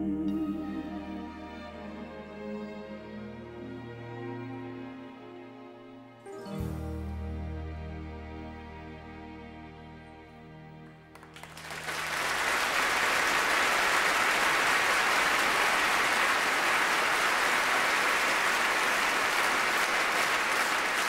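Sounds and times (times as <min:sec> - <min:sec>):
audience applauding: 0:11.1 - 0:21.0.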